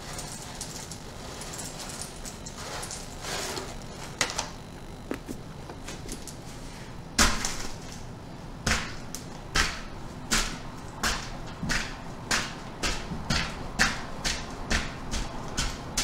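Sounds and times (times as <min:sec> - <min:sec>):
crackers crunching underfoot: 0:00.0 - 0:06.8.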